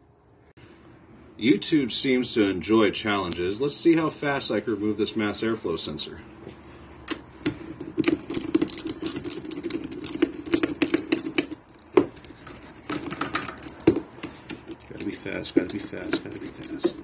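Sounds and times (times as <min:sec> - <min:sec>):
ratchet clicking rapidly: 0:08.0 - 0:11.9
metal parts rattling: 0:08.0 - 0:17.0.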